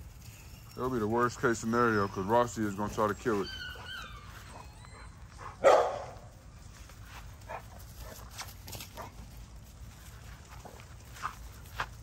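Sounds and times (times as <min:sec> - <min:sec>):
dogs play-wrestling on grass: 0:00.0 - 0:12.0
dog barking: 0:05.4 - 0:06.2.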